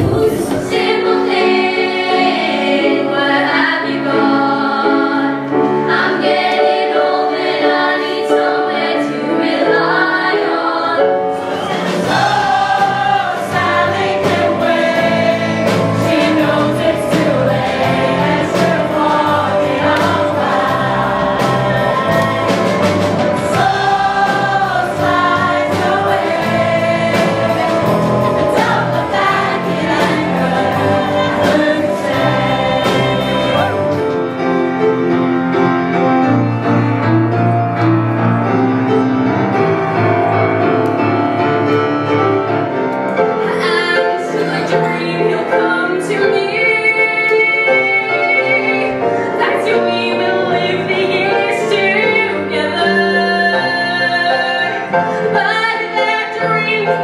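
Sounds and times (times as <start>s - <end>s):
live band with drums: 0.0s - 1.6s, 11.2s - 36.0s
choir of young voices singing: 0.0s - 34.3s, 43.4s - 57.0s.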